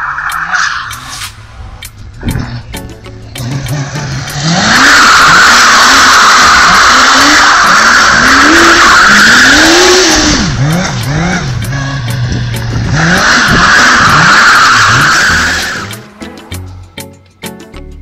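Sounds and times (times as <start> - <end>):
tires squealing on asphalt: 0.0 - 1.3, 3.7 - 16.0
engine revving: 0.0 - 16.2
music: 0.9 - 4.5, 11.0 - 13.0, 15.3 - 18.0.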